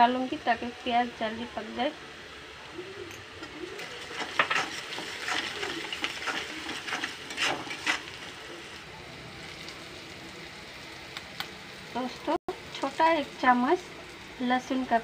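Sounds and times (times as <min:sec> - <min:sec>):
onions sizzling in oil: 0:00.0 - 0:15.0
metal spatula scraping pan: 0:03.8 - 0:08.2.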